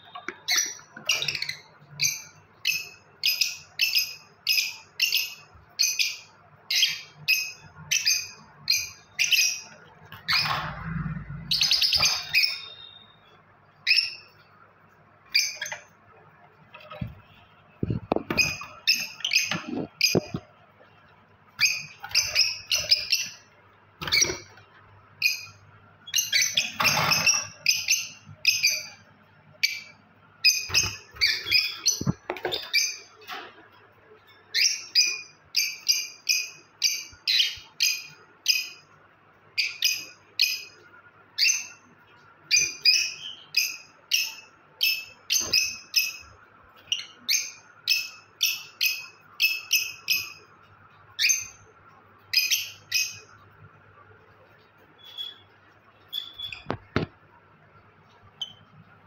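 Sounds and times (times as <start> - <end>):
lovebird shrill chirps: 11.5 - 14.4, 55.0 - 55.5, 56.1 - 56.8.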